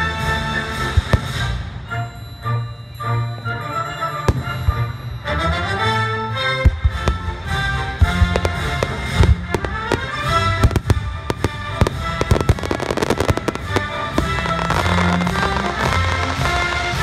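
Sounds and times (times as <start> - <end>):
sharp bangs and crackles: 0.0 - 1.9, 6.6 - 17.0
fireworks bursting: 0.0 - 2.3, 6.6 - 17.0
music: 0.0 - 17.0.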